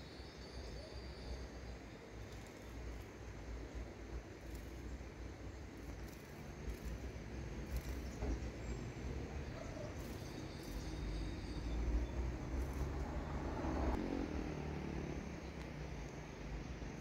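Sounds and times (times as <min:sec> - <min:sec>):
high-pitched insect trills: 0:00.0 - 0:08.4, 0:09.0 - 0:14.0.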